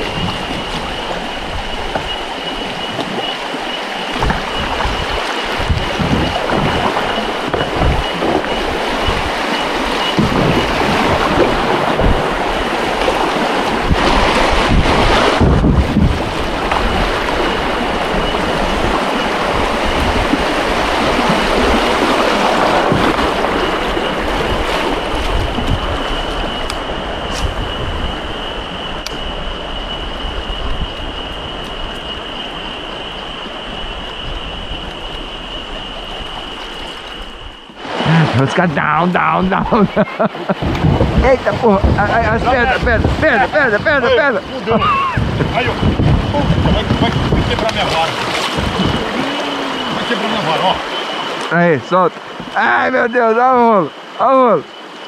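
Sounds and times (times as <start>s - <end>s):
river water rushing: 0.0s - 28.7s, 32.2s - 55.0s
steady high-pitched tone: 48.8s - 55.0s.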